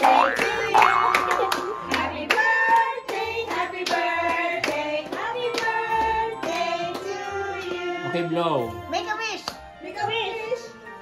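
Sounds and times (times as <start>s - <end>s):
hands clapping along: 0.0s - 7.2s
people singing: 0.0s - 8.9s.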